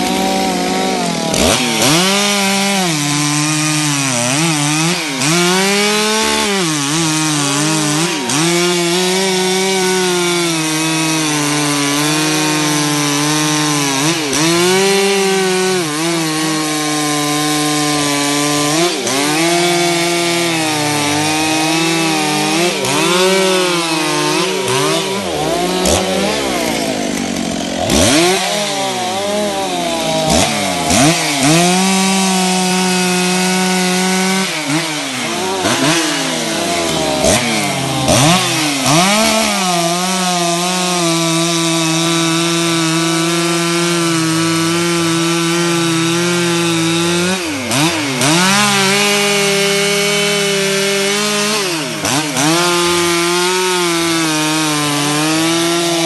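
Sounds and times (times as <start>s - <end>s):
chainsaw cutting through wood: 0.0s - 56.0s.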